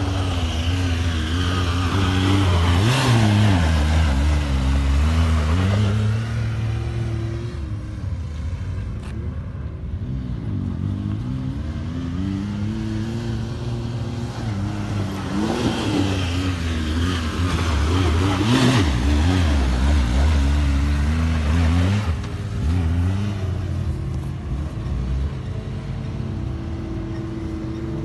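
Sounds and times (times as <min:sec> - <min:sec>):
off-road vehicle engine revving: 0:00.0 - 0:07.9, 0:10.0 - 0:28.0.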